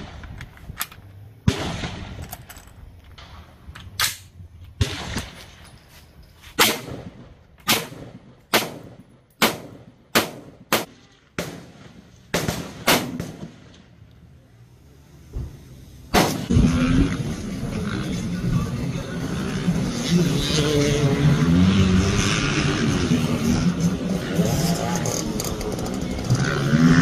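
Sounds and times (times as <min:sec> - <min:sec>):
gunshots with echo: 0:06.6 - 0:13.7.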